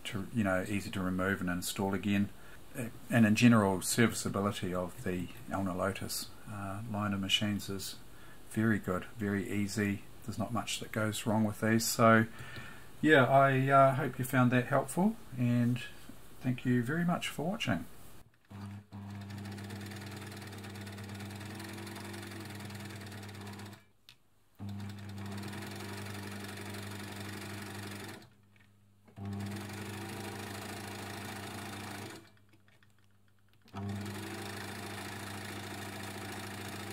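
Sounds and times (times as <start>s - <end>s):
sewing machine stitching: 18.4s - 23.9s, 24.6s - 28.4s, 29.1s - 32.9s, 33.6s - 36.9s.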